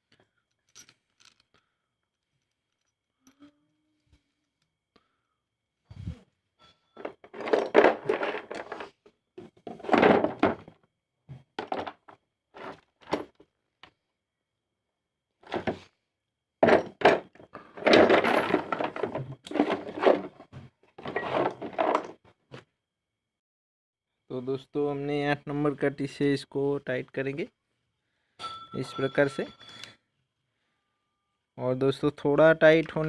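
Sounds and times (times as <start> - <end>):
metal hand tools clattering: 7.0 - 8.8, 16.6 - 20.4.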